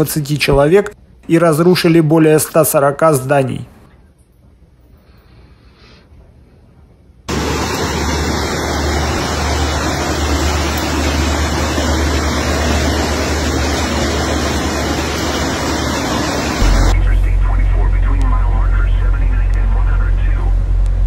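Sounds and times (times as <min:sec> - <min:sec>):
floodwater rushing: 0:07.3 - 0:17.0
deep rumble: 0:07.3 - 0:21.0.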